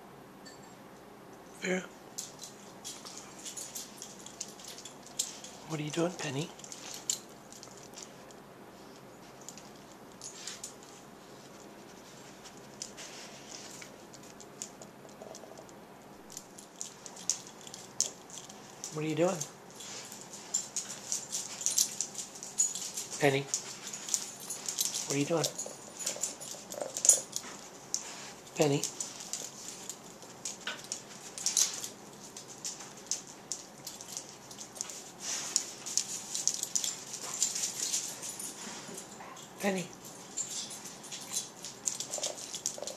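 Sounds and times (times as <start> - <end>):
dog's teeth clicking: 13.8 - 19.0, 20.2 - 38.0, 41.1 - 42.9
dog teeth clicking: 20.7 - 28.1, 41.4 - 42.9.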